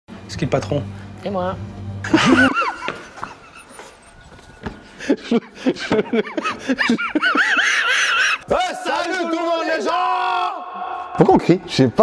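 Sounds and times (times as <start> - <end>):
men laughing: 2.0 - 8.6.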